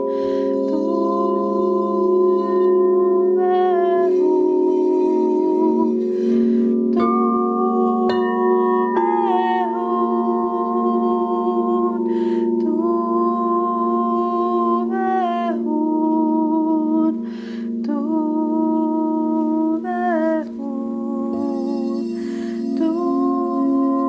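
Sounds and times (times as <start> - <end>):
in-breaths: 0.0 - 0.6, 6.0 - 6.9, 12.0 - 12.6, 17.2 - 17.8, 22.1 - 22.8
crystal singing bowls droning: 0.0 - 24.0
woman singing wordless tones: 0.0 - 24.0.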